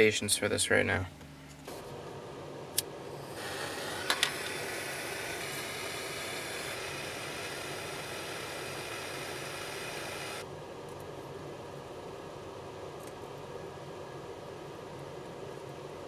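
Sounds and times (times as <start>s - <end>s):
torch flame hissing: 1.7s - 10.4s.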